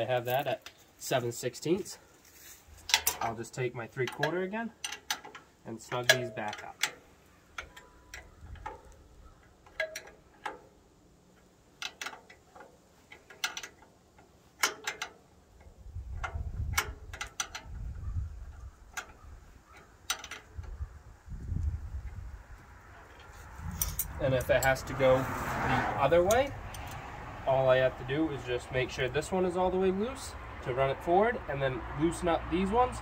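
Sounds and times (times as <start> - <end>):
wrench clicking on metal bolts: 2.8 - 20.9, 23.0 - 24.9, 26.2 - 27.1.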